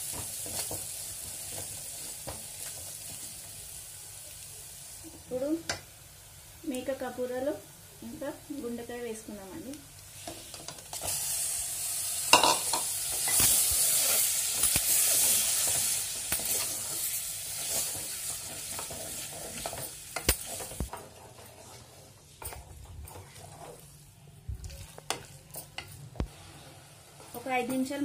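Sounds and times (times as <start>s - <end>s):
meat sizzling in hot oil: 0.0s - 20.9s
wooden spoon scraping pot: 17.6s - 24.0s.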